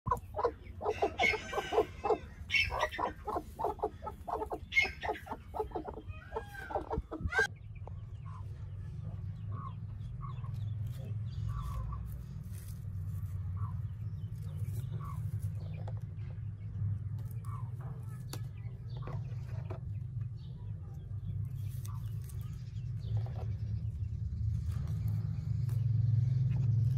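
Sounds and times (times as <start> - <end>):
hens clucking: 0.0 - 7.5, 8.1 - 16.4
hen rising calls: 0.1 - 7.5
chicks peeping: 0.1 - 26.9.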